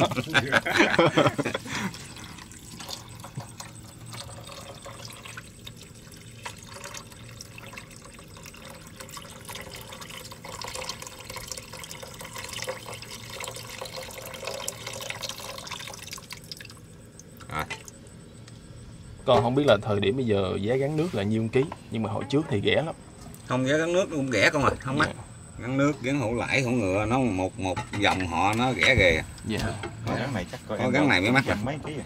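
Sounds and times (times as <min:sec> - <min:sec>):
liquid pouring into a pan: 0:01.1 - 0:18.0.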